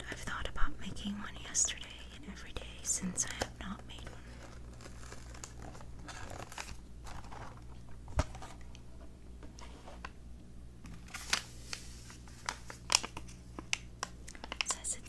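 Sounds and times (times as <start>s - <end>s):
packet clicks and crinkles: 1.4s - 8.6s, 11.0s - 15.0s.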